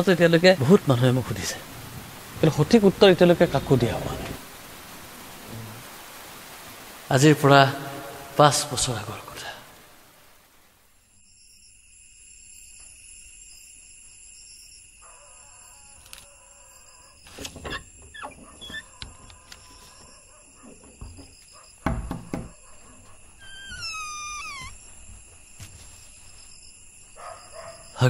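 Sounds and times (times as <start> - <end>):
insects chirring: 0.0 - 28.0
soft knocks and thumps: 17.4 - 26.1.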